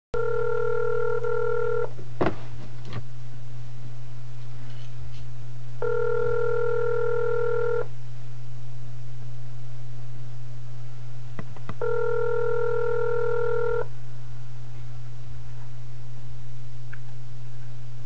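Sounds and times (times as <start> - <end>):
telephone ringback tone: 0.2 - 1.9, 5.8 - 7.9, 11.8 - 13.9.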